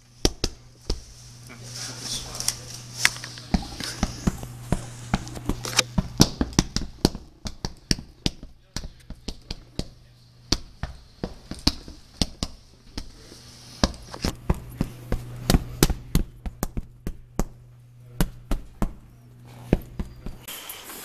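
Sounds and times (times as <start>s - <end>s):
steady low hum: 0.0s - 21.0s
sharp taps and knocks: 3.5s - 13.2s.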